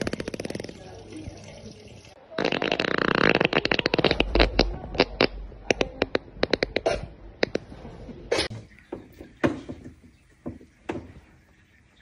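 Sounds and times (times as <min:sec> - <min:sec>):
long fart: 0:02.4 - 0:05.3.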